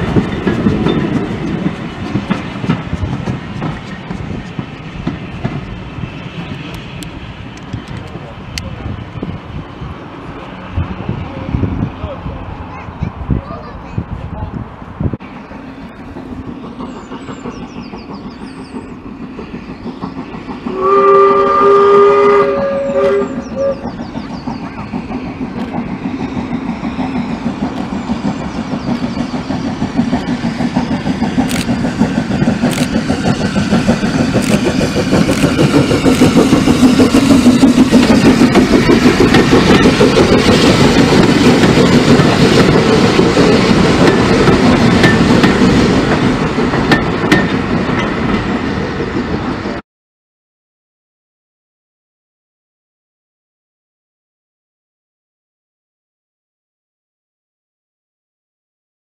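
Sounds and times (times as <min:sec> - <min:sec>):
coaches clattering over rails: 0:00.0 - 0:20.8, 0:23.9 - 0:49.8
steam locomotive chuffing: 0:00.0 - 0:49.8
steam locomotive whistle: 0:20.6 - 0:24.0.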